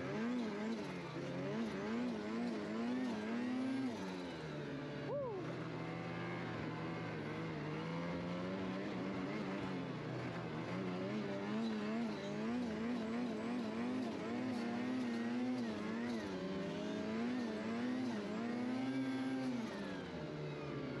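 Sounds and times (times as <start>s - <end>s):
snowmobile engine running: 0.0s - 19.8s.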